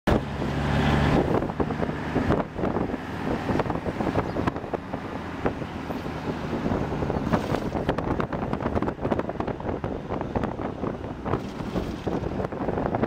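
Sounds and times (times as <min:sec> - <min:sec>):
road noise: 0:00.1 - 0:13.0
vehicle engine hum: 0:00.1 - 0:13.0
wind buffeting microphone: 0:00.1 - 0:13.0.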